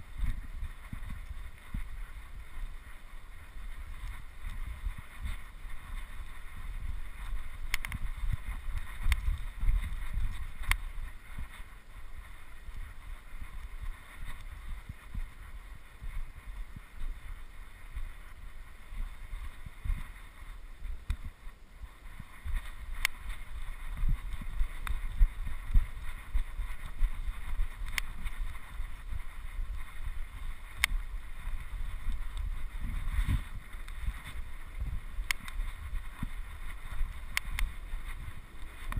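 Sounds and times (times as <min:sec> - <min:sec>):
wind buffeting microphone: 0:00.0 - 0:38.9
faint sharp clicks: 0:03.4 - 0:11.7, 0:12.7 - 0:15.3, 0:21.0 - 0:21.3, 0:22.5 - 0:27.0, 0:27.6 - 0:29.0, 0:29.6 - 0:34.4, 0:35.2 - 0:38.9.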